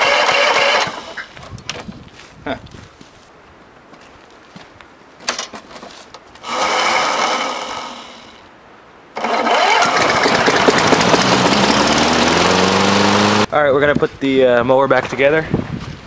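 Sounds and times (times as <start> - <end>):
lawn mower engine cranking and running: 0.0 - 1.4, 6.4 - 8.4, 9.2 - 13.5.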